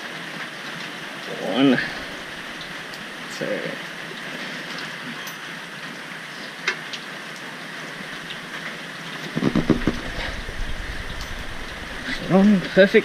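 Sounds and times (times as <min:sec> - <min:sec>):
heavy rain hissing: 0:00.0 - 0:13.0
low knocks and rumbling: 0:09.4 - 0:13.0.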